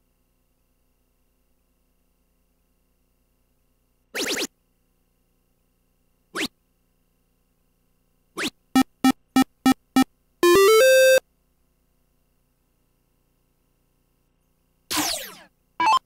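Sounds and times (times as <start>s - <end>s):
rising electronic chirp: 8.4s - 11.2s, 15.8s - 16.0s.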